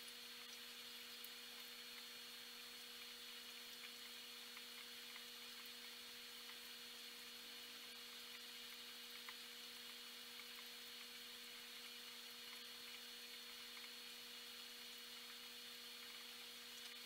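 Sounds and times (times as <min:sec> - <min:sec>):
aquarium equipment hum: 0:00.0 - 0:17.0
faint ticks: 0:02.9 - 0:06.7, 0:07.9 - 0:14.0, 0:14.6 - 0:17.0.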